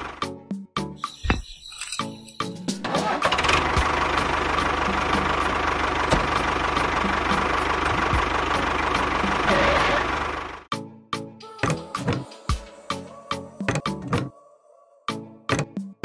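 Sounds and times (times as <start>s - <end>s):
tractor engine running: 2.4s - 10.7s.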